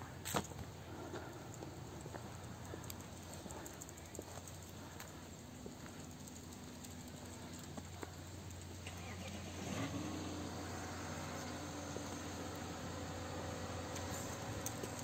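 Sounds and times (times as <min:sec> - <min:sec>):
soft ticks: 0:01.2 - 0:09.0, 0:13.9 - 0:15.0.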